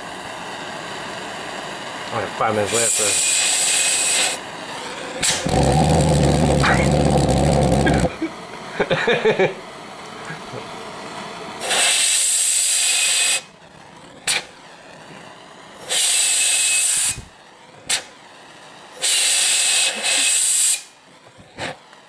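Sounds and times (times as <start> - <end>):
compressed air blasts hissing: 2.7 - 8.2, 11.6 - 13.6, 14.2 - 14.5, 15.8 - 18.2, 18.9 - 21.9
sharp pop: 5.2 - 5.5, 14.3 - 14.5, 17.9 - 18.1.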